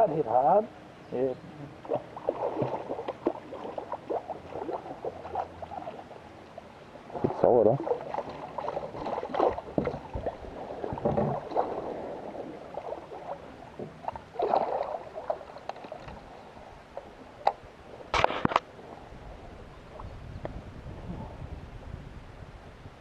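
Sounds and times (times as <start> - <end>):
fish splashing and thrashing: 1.9 - 6.2, 7.1 - 17.5.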